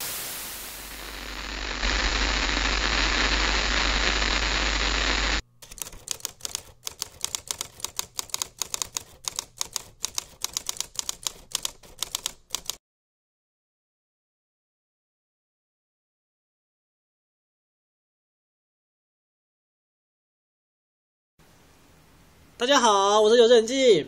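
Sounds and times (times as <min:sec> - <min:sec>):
tv static hiss: 0:00.0 - 0:05.4
low hum: 0:00.6 - 0:05.4
typewriter keystrokes: 0:05.6 - 0:12.8.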